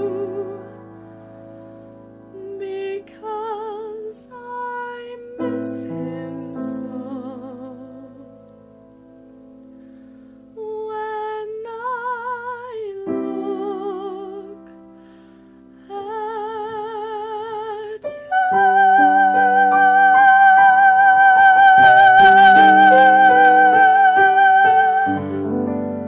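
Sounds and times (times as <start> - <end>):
woman singing a ballad with vibrato: 0.0 - 1.0, 2.3 - 8.4, 10.5 - 14.9, 15.8 - 26.0
instrumental accompaniment: 18.1 - 26.0.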